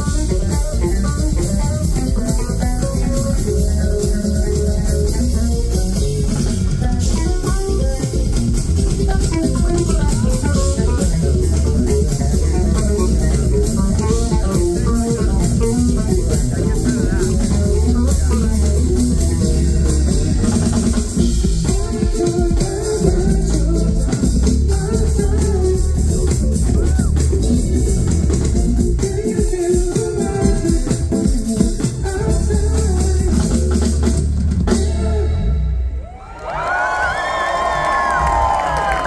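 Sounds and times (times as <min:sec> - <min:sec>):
electric bass runs: 0:00.0 - 0:21.9
drum kit with cymbals: 0:00.0 - 0:36.2.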